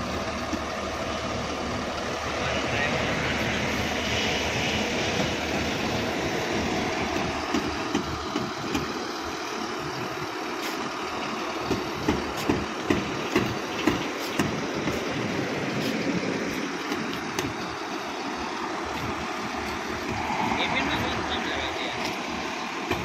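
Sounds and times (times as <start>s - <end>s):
diesel engine idling: 0.0s - 23.0s.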